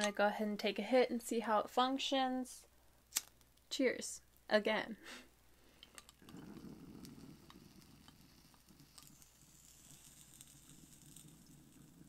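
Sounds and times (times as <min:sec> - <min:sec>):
water bubbling in a bong: 0:06.2 - 0:12.0.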